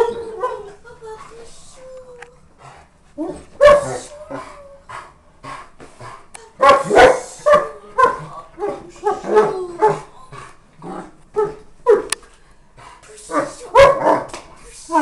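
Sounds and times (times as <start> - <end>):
dog barking and whining: 3.2 - 4.8, 6.6 - 10.1, 11.3 - 12.2, 13.3 - 14.3.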